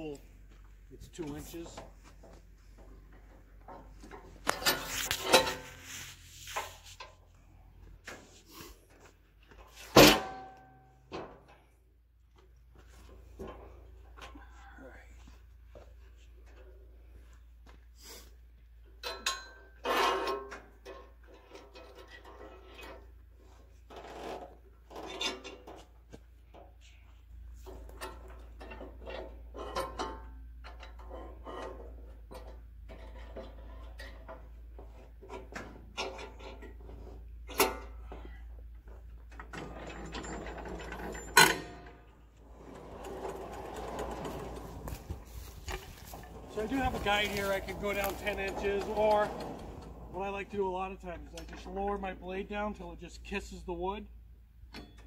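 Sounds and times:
log knocking and scraping on steel: 1.6 - 7.2, 27.6 - 52.1
mechanical rattling: 39.6 - 50.2.

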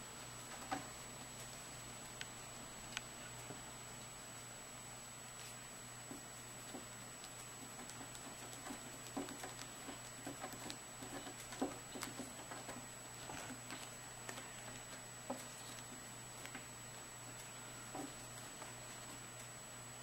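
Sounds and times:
low steady hum: 0.0 - 20.0
paws and toy tapping on mat: 6.1 - 16.7.

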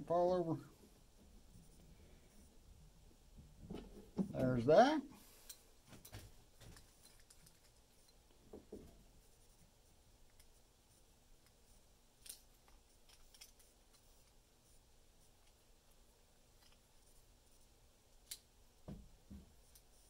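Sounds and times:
small metal parts clicking: 6.6 - 8.3, 12.2 - 14.4, 15.4 - 17.2.

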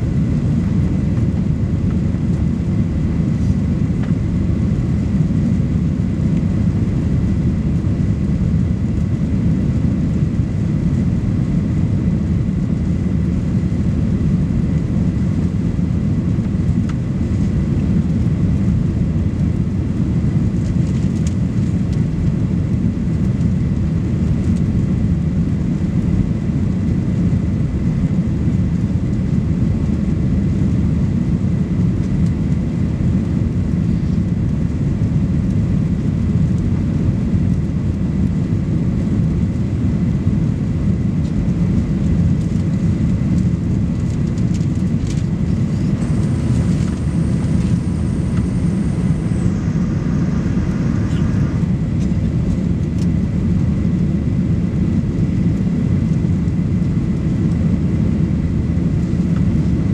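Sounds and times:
jet engines roaring in cabin: 0.0 - 59.9
air rushing past fuselage: 46.0 - 52.1.

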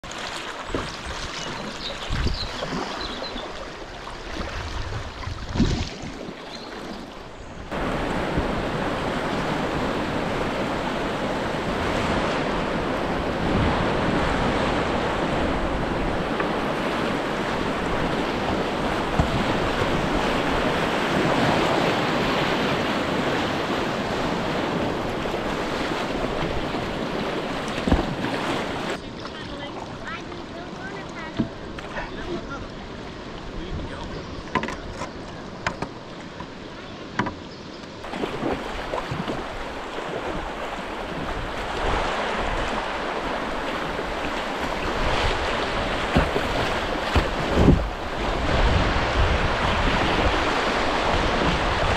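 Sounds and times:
kayak paddle splashing: 0.0 - 51.9
whitewater rapids rushing: 7.7 - 33.7, 38.0 - 51.9.

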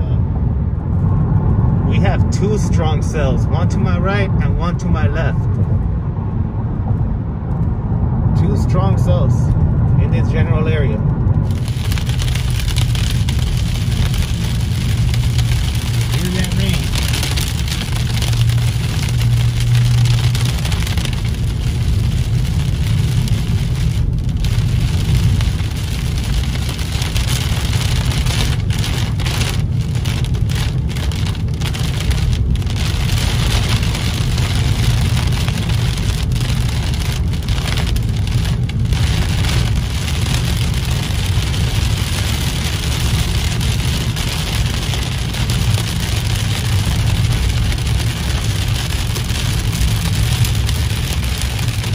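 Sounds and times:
car driving on wet road: 0.0 - 51.9
engine and tyres rumbling: 0.0 - 51.9
heavy rain on car roof: 11.3 - 51.9.

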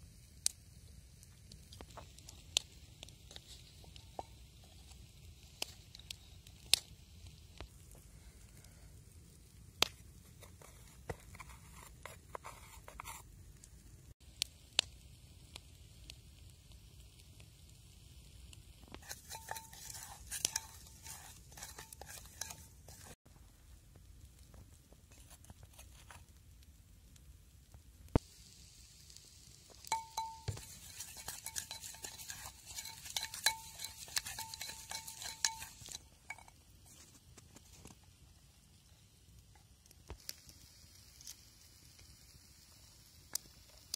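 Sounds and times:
wooden spoon scraping clay pot: 10.2 - 13.3, 19.0 - 23.2, 29.9 - 37.3
pot ringing tone: 19.0 - 23.1, 29.9 - 36.6
clay kitchenware tapping: 29.9 - 36.5.

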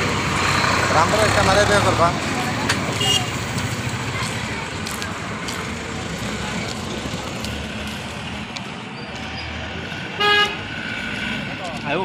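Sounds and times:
road traffic engines: 0.0 - 12.0.

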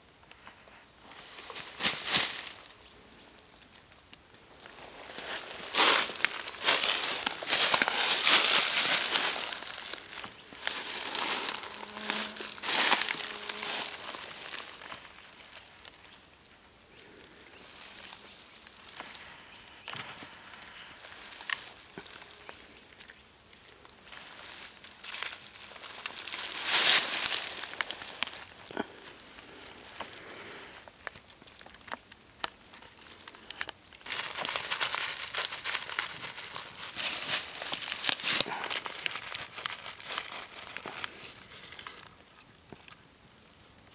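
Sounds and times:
dry leaves rustling and crackling: 0.5 - 42.9.

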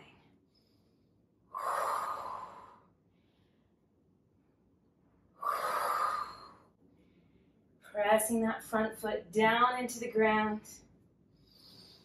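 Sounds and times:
woman exhaling forcefully: 1.5 - 2.8, 5.4 - 6.6.

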